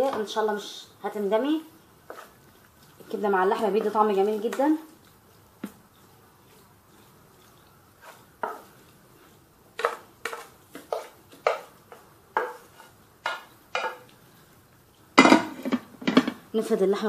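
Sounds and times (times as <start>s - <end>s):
wooden spoon scraping metal bowl: 2.0s - 14.1s.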